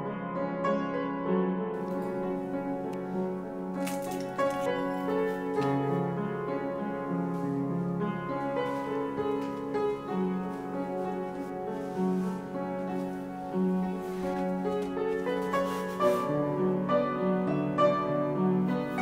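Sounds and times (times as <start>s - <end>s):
slow instrumental music: 1.7s - 19.0s.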